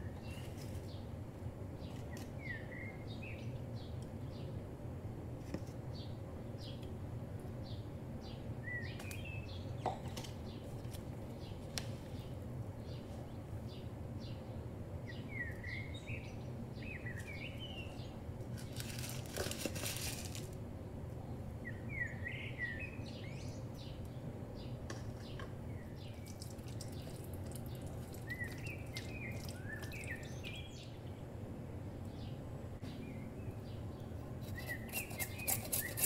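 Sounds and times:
steady low hum: 0.0 - 36.0
small bird chirping: 25.3 - 31.0, 32.9 - 36.0.

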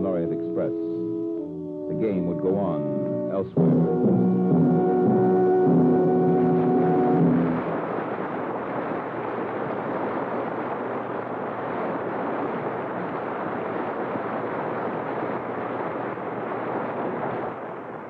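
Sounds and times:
orchestral chord: 0.0 - 7.8
disc surface noise hiss: 0.0 - 18.0.

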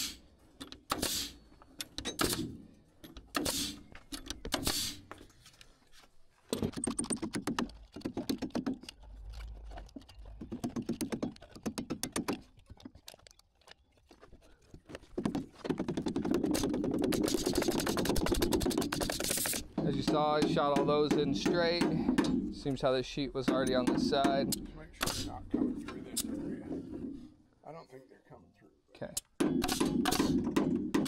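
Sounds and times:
nail gun shots into wood: 0.8 - 1.4, 2.0 - 2.6, 3.3 - 3.8, 4.5 - 5.0, 23.5 - 25.3, 29.4 - 31.0.

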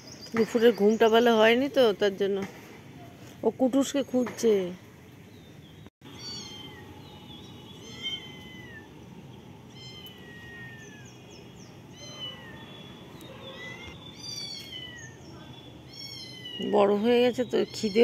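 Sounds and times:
cat meowing: 6.2 - 6.8, 7.8 - 8.9, 9.7 - 11.2, 11.9 - 15.2, 15.9 - 16.7.

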